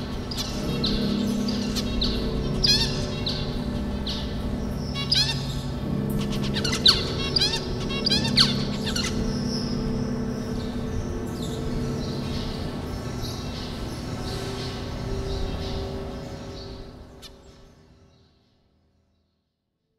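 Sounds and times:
finches chirping: 0.0s - 18.4s
low drone of held tones: 0.0s - 19.0s.

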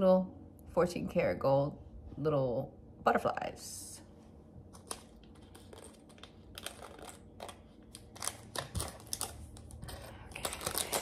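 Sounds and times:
packaging clicks and crinkling: 4.8s - 11.0s.

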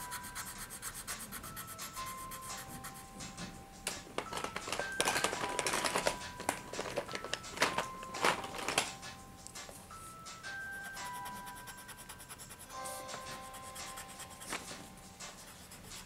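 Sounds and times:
soft chime-like background music: 0.0s - 16.0s
colored pencils clicking and rattling: 3.9s - 9.1s.

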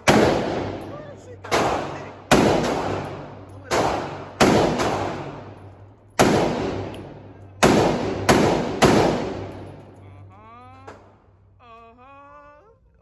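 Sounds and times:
rifle shots echoing: 0.0s - 10.0s.

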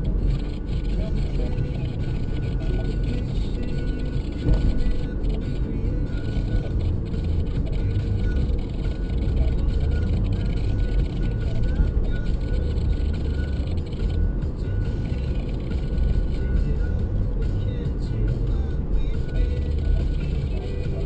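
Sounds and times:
car road and engine rumble: 0.0s - 21.0s
faint music: 0.0s - 21.0s.

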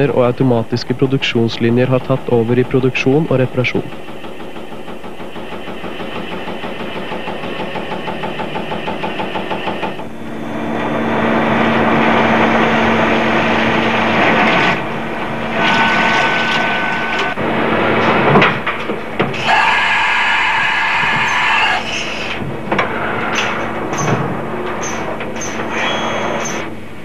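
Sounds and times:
milling machine cutting metal: 0.0s - 26.8s
high steady machine whine: 0.0s - 27.0s
punch press stamping: 2.6s - 10.1s.

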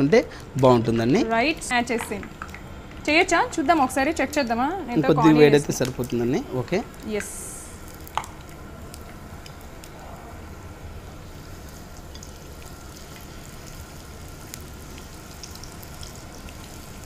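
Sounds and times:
food deep-frying in oil: 0.0s - 17.0s
small pops and crackles: 0.4s - 3.9s, 6.9s - 10.0s.

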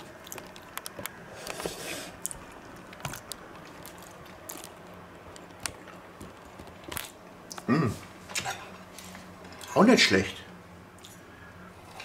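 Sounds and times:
person chewing food: 0.0s - 7.7s.

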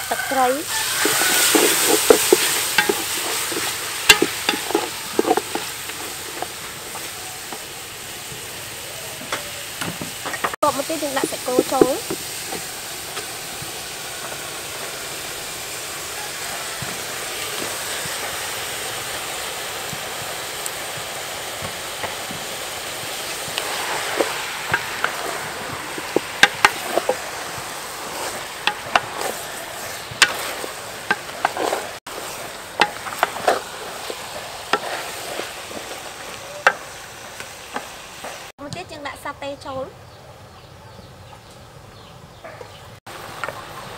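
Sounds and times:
wooden spatula scraping metal pot: 0.0s - 7.6s, 10.2s - 13.3s, 22.0s - 37.0s
meat sizzling in a pot: 0.0s - 39.8s, 43.0s - 43.9s.

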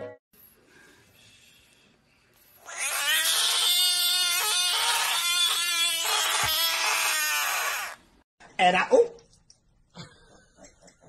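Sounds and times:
frog wailing scream: 2.6s - 8.1s.

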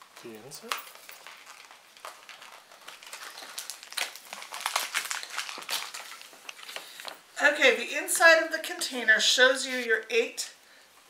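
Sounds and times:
toy packaging crinkling: 0.1s - 7.3s.

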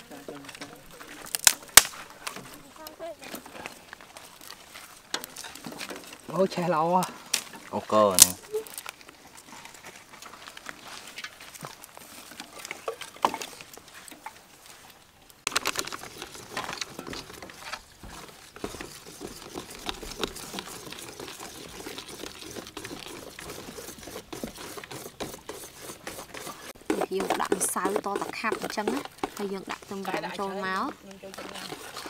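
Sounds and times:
sticks clicking and knocking: 15.4s - 30.2s.

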